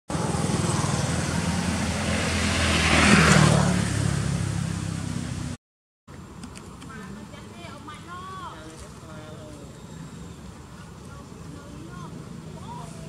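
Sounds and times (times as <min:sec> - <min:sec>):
vehicle engine passing by: 0:00.1 - 0:05.6.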